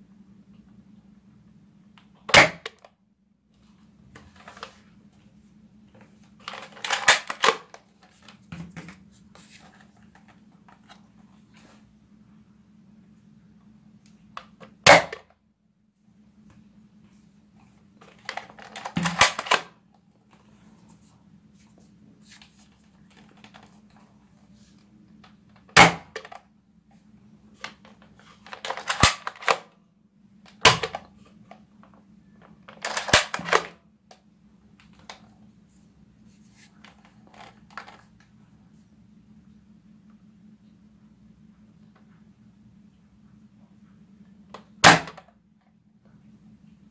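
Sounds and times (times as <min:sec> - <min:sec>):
faint low hum: 0:00.0 - 0:46.9
plastic rattling and clatter: 0:06.3 - 0:09.0, 0:18.0 - 0:19.6, 0:27.6 - 0:29.6, 0:36.8 - 0:38.1.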